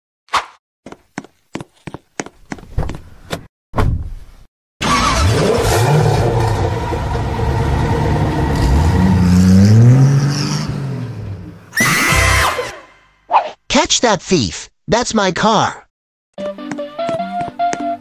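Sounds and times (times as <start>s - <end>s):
short thud: 2.7s - 4.2s
sports car engine revving: 4.9s - 11.6s.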